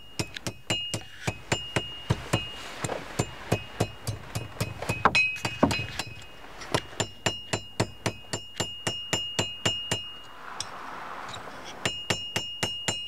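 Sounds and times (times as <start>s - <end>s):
hammer striking hot iron on anvil: 0.0s - 2.6s, 3.2s - 10.7s, 11.8s - 13.0s
anvil ringing: 3.2s - 10.7s, 11.8s - 13.0s.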